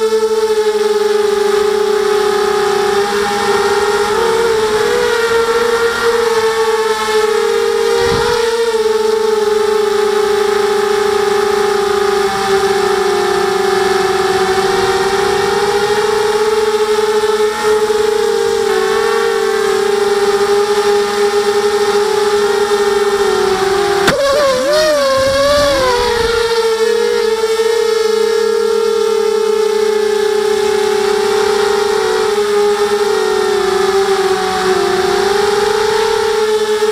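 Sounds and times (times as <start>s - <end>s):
drone motors whining: 0.0s - 36.9s.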